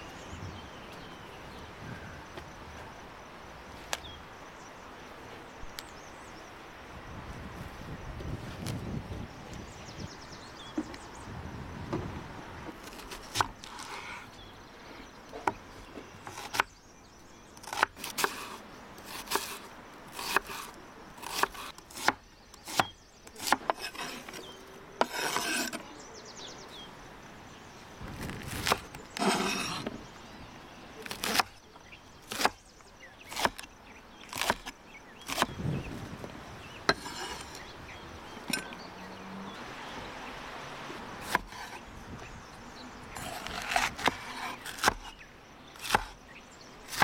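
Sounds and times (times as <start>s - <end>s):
knife slicing vegetables: 20.2s - 25.8s.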